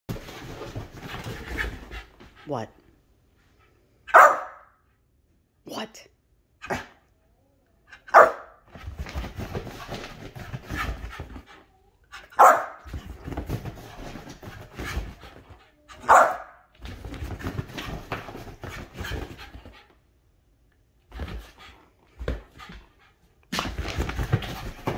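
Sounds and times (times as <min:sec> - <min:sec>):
dog barking: 0:04.1 - 0:04.8, 0:08.1 - 0:08.6, 0:12.3 - 0:12.8, 0:16.0 - 0:16.6.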